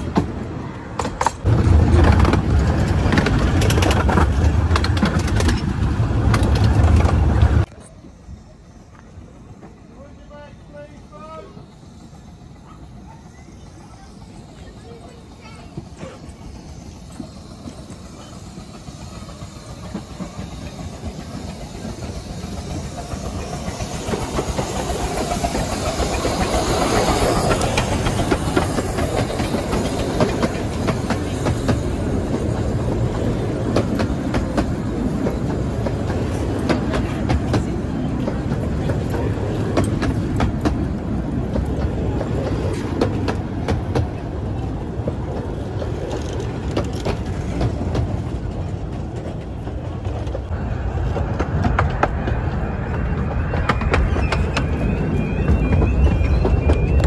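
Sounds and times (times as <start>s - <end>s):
wheel clicks over rail joints: 0.0s - 7.7s
steam locomotive passing: 0.0s - 57.0s.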